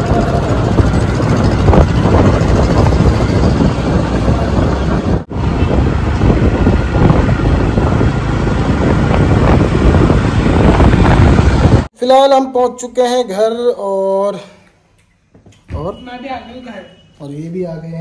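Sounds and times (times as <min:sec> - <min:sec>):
motorcycle engine: 0:00.0 - 0:11.9
wind buffeting microphone: 0:00.0 - 0:11.9
road noise: 0:00.0 - 0:12.0.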